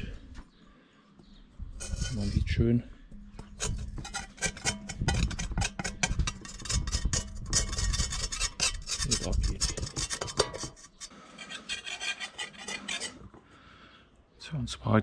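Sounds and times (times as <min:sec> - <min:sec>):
scraping paint off metal helmet: 0:01.8 - 0:13.4.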